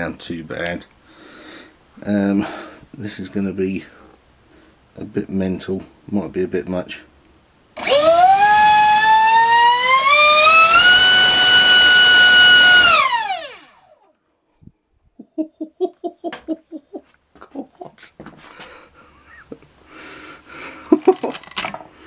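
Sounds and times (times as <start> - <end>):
electric motor high whine: 7.8 - 14.0
person crying wow: 15.2 - 18.2.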